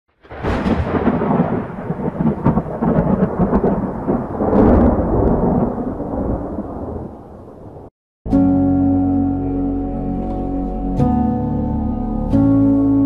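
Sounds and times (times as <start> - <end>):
thunder rumbling: 0.2 - 7.9.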